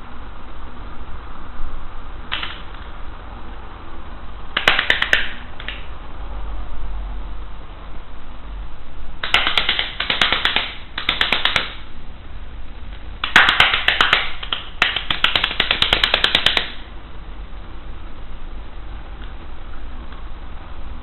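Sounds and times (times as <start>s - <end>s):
plastic clapper toy clacking: 9.2s - 11.8s.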